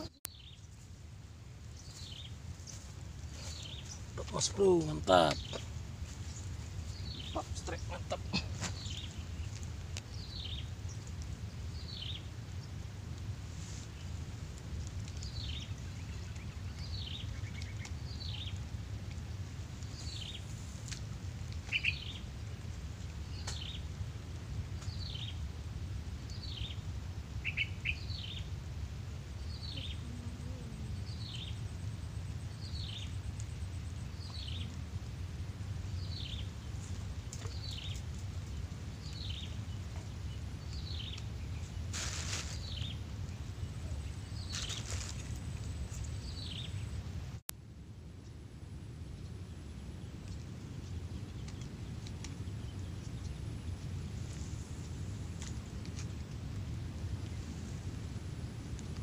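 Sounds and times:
steady low rumble: 0.0s - 59.0s
bird chirping: 1.7s - 11.1s, 21.6s - 22.2s, 27.4s - 28.5s, 29.4s - 34.8s.

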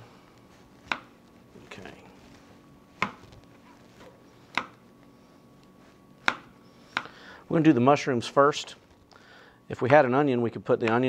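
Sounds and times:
knife chopping on plastic board: 0.8s - 1.1s, 3.0s - 3.3s, 4.0s - 4.8s, 6.2s - 7.1s.

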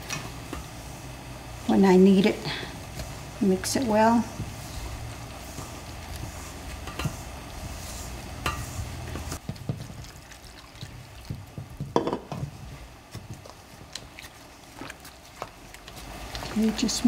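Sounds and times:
wooden sticks clicking on metal bowl: 8.4s - 8.7s.

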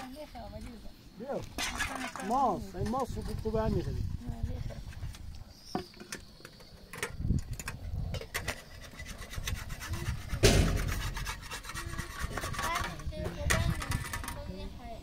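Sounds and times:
metal spatula scraping iron pan: 8.1s - 14.4s.

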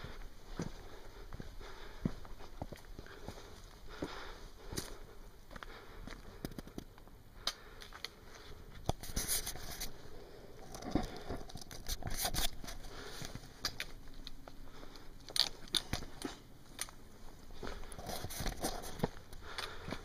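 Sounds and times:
footsteps crunching on a trail: 0.0s - 20.0s.

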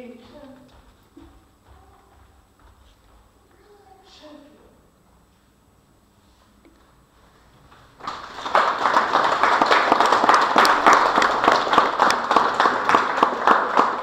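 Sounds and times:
audience applauding: 8.0s - 14.0s.

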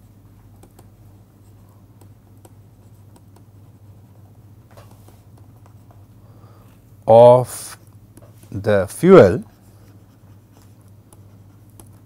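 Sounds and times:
steady low hum: 0.0s - 12.0s
stylus writing on tablet screen: 1.4s - 4.3s, 4.9s - 6.0s, 8.2s - 12.0s.

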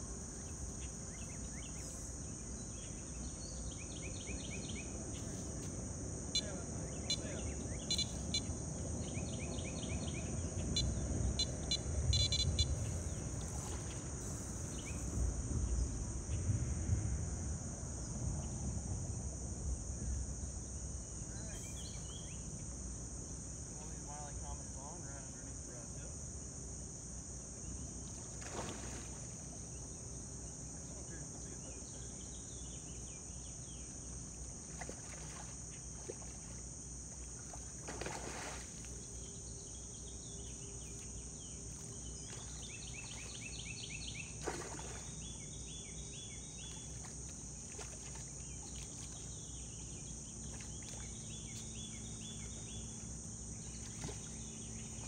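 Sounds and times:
river current rumble: 0.0s - 22.8s, 27.7s - 55.0s
crickets droning: 0.0s - 55.0s
repeated chirping: 7.1s - 8.5s, 10.8s - 12.7s
fish splashing at surface: 28.3s - 29.4s, 37.4s - 38.9s, 44.4s - 45.2s.

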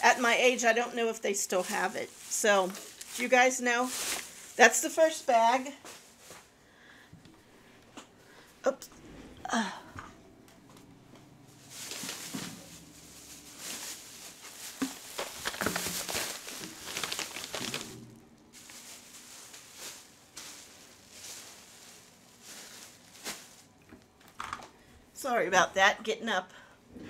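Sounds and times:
rustling and crinkling: 0.0s - 6.6s, 10.1s - 24.8s
footsteps: 10.0s - 23.8s.

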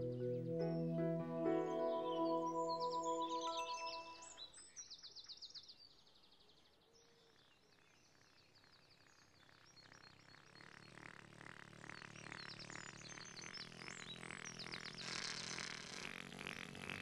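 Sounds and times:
held music chord: 0.0s - 4.4s
faint birdsong chirps: 0.0s - 6.4s.

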